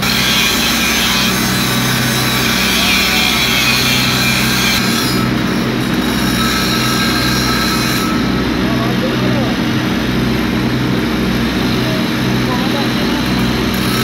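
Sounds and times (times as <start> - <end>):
angle grinder grinding metal: 0.0 - 14.0
low machine hum: 0.0 - 14.0.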